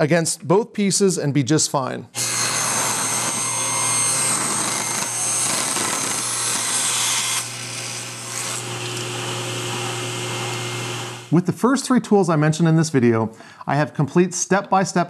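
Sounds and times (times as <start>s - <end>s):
table saw cutting wood: 2.2s - 11.3s
table saw spinning freely: 2.2s - 11.3s.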